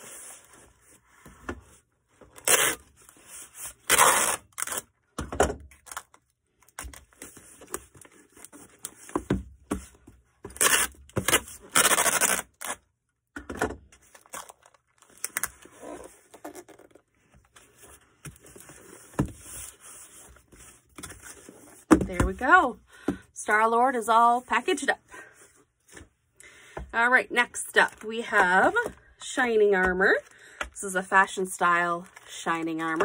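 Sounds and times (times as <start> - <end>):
cardboard scraping or tearing: 2.4 - 4.9, 10.5 - 12.8, 14.1 - 21.8
cardboard box packing sounds: 14.0 - 22.4.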